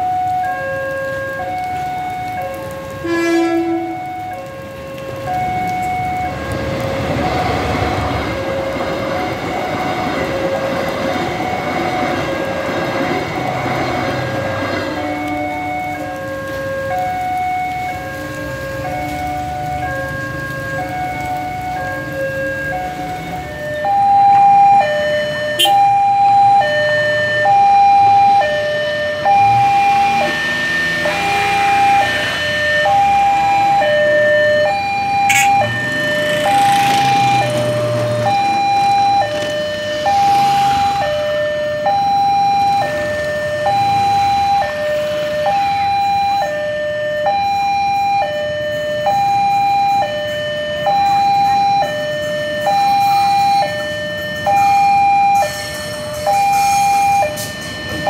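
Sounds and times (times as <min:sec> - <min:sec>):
level crossing two-tone alarm: 0:18.8 - 0:58.0.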